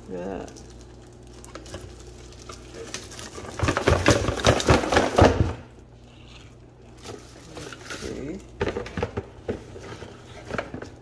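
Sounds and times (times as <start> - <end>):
plastic wrapping crinkling: 0.0 - 5.4, 6.5 - 8.9.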